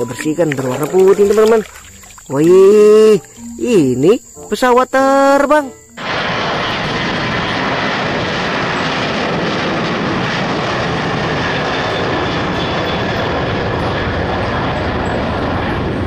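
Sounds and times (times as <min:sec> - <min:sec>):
high engine whine: 0:05.7 - 0:16.0
jet engines roaring: 0:06.0 - 0:16.0.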